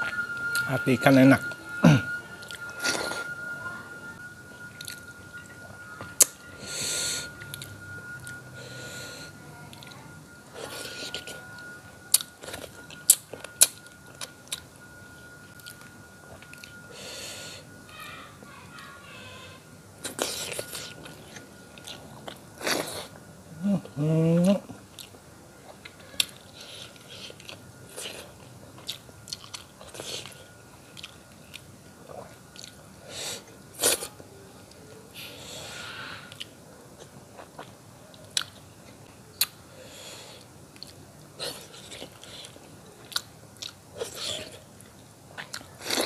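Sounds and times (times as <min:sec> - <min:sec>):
person chewing: 0:09.7 - 0:11.5, 0:12.1 - 0:14.6, 0:20.0 - 0:23.2, 0:23.8 - 0:32.8, 0:34.7 - 0:38.6, 0:39.4 - 0:46.0.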